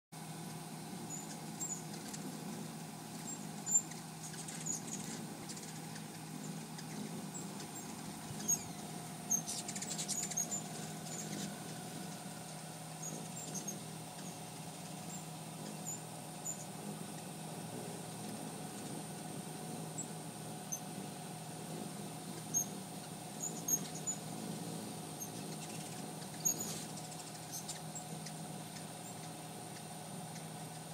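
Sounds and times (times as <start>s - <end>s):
steady low hum: 0.2s - 30.9s
hummingbird chips and squeaks: 1.0s - 17.4s, 22.4s - 24.3s, 25.2s - 30.9s.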